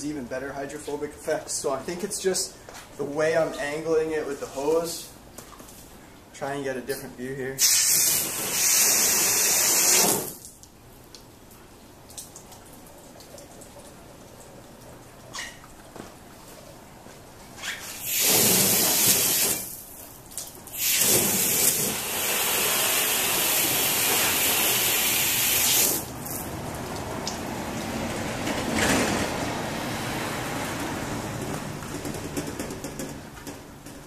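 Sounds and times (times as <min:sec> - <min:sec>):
garden hose spraying water: 0:07.6 - 0:10.6, 0:17.9 - 0:27.4.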